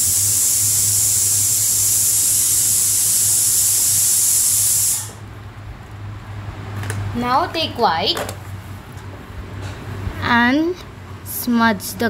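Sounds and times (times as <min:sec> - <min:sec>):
loud high-pitched hiss: 0:00.0 - 0:05.2.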